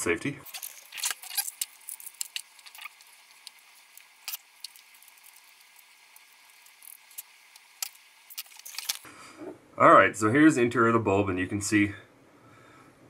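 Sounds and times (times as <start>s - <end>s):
glass clicking and crackling: 0.4s - 9.1s.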